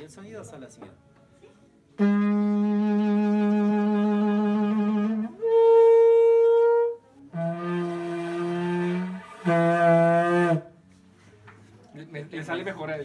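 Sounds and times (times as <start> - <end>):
bamboo trumpet long notes: 2.0 - 10.8.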